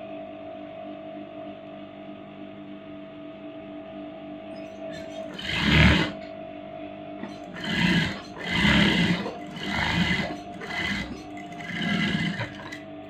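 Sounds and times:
faint steady hum: 0:03.8 - 0:13.0
sewing machine stitching: 0:05.0 - 0:06.2, 0:07.2 - 0:12.8.

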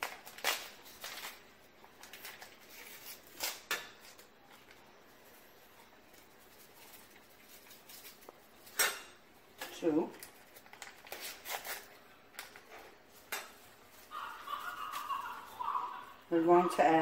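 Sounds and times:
foil packets tearing: 0:00.0 - 0:04.3, 0:06.2 - 0:08.8, 0:10.1 - 0:12.6
foil packets crinkling: 0:00.0 - 0:05.0, 0:06.0 - 0:08.8, 0:10.1 - 0:16.1.

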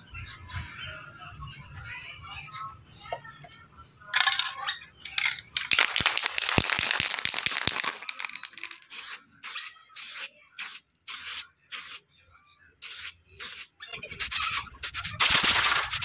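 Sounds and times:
aerosol can mixing ball rattling: 0:04.2 - 0:09.2
spray can hissing: 0:05.1 - 0:12.0, 0:12.8 - 0:16.0.

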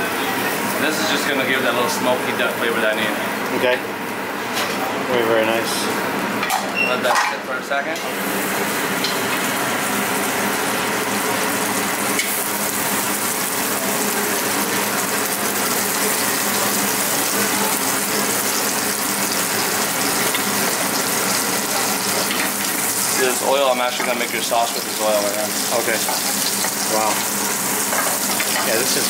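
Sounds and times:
food sizzling in a pan: 0:08.1 - 0:29.0.

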